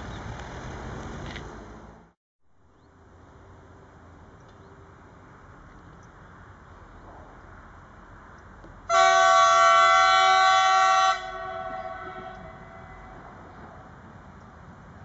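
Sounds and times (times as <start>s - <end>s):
train horn blast: 8.9s - 13.5s.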